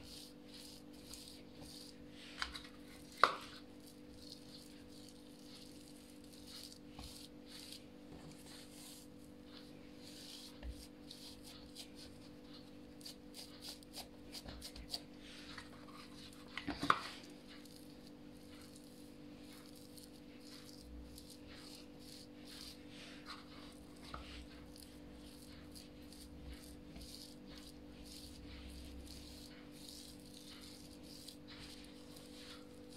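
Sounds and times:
hands patting dough: 0.0 - 32.9.

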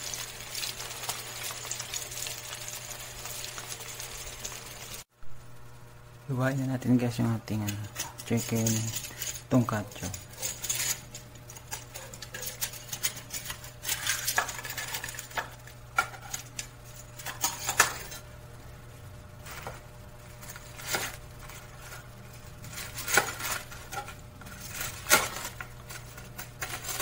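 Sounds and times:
metal tongs clattering against bowl: 7.5 - 18.2.

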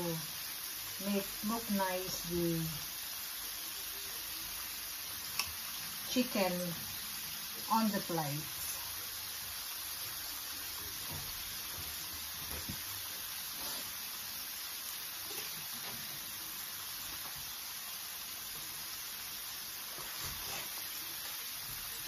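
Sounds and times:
oil sizzling in a pan: 0.0 - 22.0.

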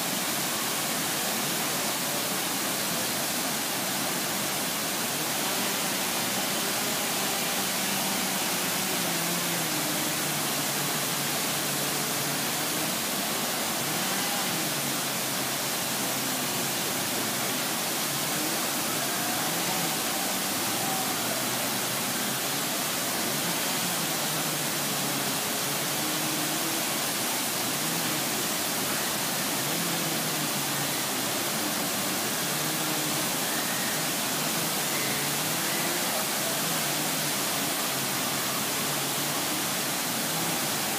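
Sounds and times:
waterfall rushing: 0.0 - 40.9.

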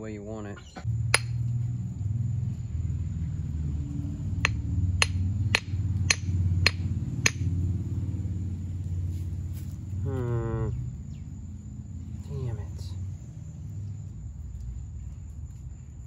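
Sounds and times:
steady low rumble: 0.1 - 16.0
hammer tapping stone: 1.1 - 1.4, 4.4 - 7.5.

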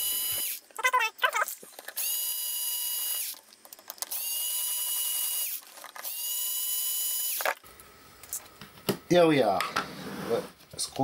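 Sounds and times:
power screwdriver motor whining: 0.0 - 0.6, 1.8 - 3.4, 4.0 - 7.6.

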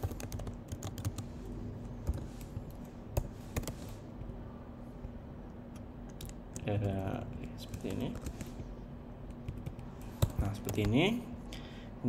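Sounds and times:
computer keyboard typing: 0.0 - 1.2, 5.7 - 8.6, 9.2 - 11.1.

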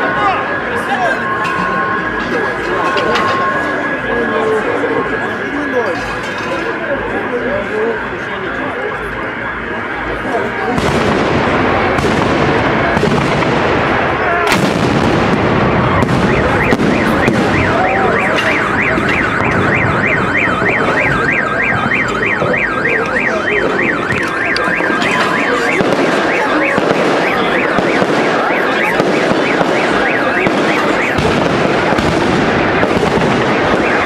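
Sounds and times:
car alarm warbling: 0.0 - 34.0.

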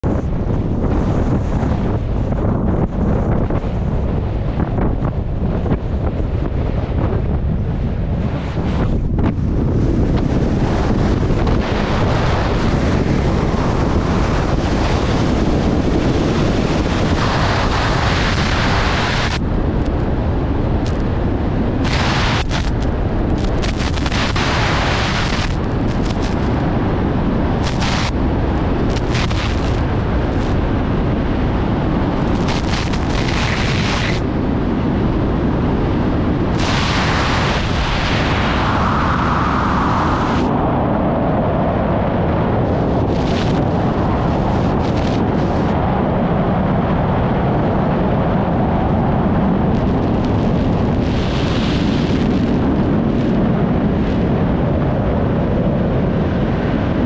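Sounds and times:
wind rushing over microphone: 0.0 - 57.0.

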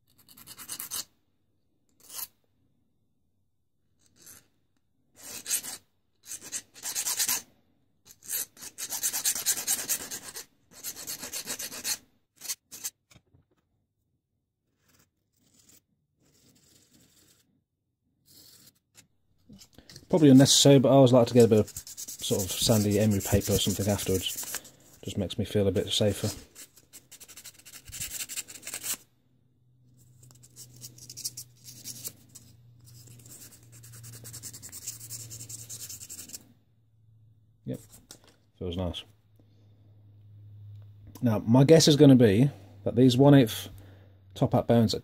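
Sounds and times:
metal scratching on emery paper: 0.1 - 1.1, 5.2 - 7.4, 8.1 - 13.0, 14.6 - 17.5, 18.2 - 25.2, 25.8 - 29.0, 30.0 - 36.4
hand file rasping on metal: 5.2 - 7.4, 8.1 - 12.9, 20.2 - 24.7
faint rubbing: 19.4 - 25.2, 25.8 - 29.0.

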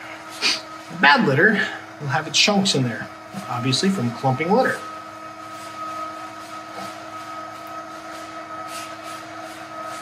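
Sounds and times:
motor hum with whine: 0.0 - 10.0
litter swishing: 5.4 - 10.0.

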